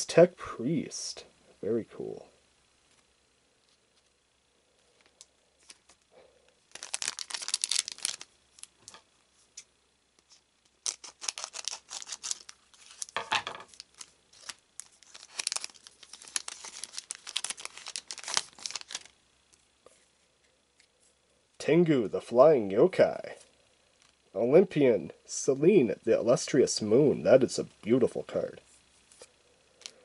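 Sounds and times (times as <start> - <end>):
wrapper crinkling and tearing: 6.7 - 9.0, 10.7 - 19.2.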